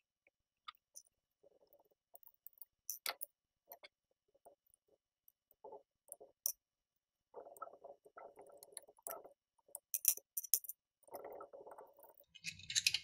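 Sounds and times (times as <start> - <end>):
clicks and clinks of metal and plastic: 12.2 - 13.0
parts clattering: 12.3 - 13.0.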